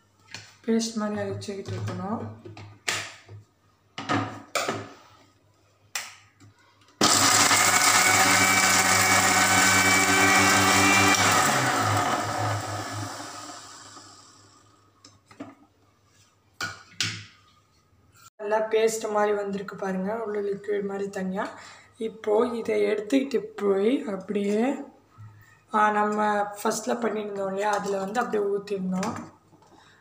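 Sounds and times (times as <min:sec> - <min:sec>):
electric mixer grinder motor: 0:07.0 - 0:14.6.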